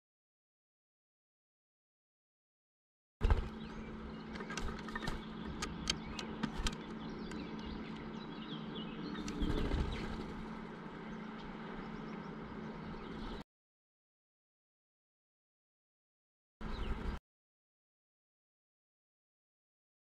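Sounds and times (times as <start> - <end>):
bird wingbeats: 3.2 - 8.1, 9.1 - 10.8
low steady hum: 3.2 - 13.4.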